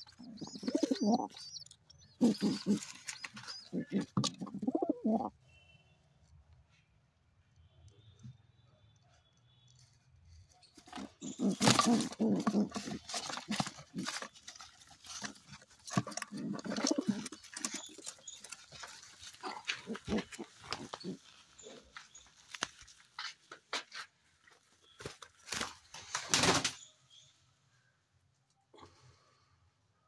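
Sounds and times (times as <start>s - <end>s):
pigeon cooing: 0.0s - 5.3s, 11.0s - 14.4s, 15.2s - 21.9s.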